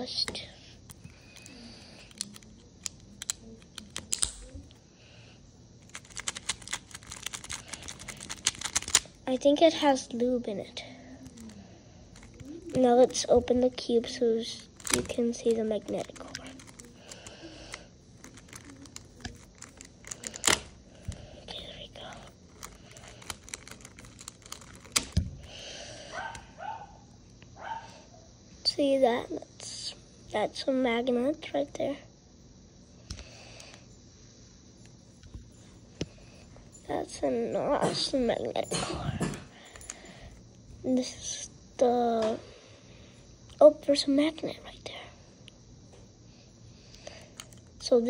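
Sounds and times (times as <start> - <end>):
plastic puzzle cube clicking: 0.9 - 4.5, 5.8 - 9.2, 14.8 - 17.3, 18.2 - 20.7, 22.5 - 25.2.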